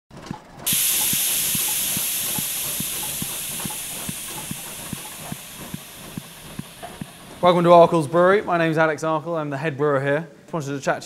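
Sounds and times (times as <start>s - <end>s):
steam hissing: 0.6s - 8.5s
steady low beat: 0.7s - 8.2s.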